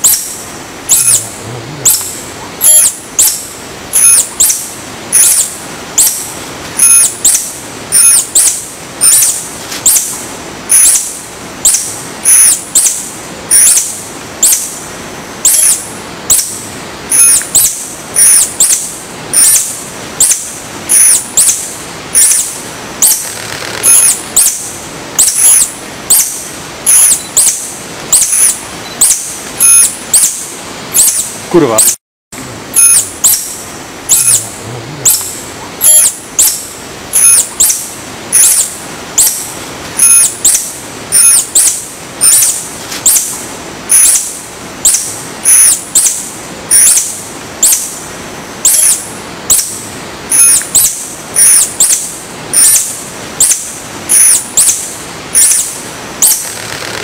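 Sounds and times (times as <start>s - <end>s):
tarsier high-pitched chirps: 0.0s - 14.7s, 15.4s - 24.6s, 25.2s - 32.0s, 32.7s - 48.0s, 48.6s - 57.0s.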